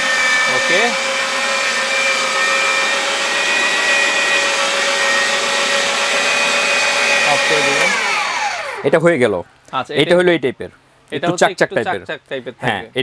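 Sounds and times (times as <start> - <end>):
electric meat grinder whining: 0.0 - 9.0.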